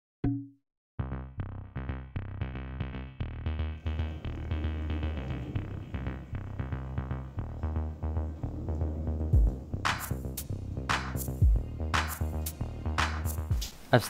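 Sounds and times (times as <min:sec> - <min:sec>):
electronic music with drum beat: 0:09.3 - 0:13.8.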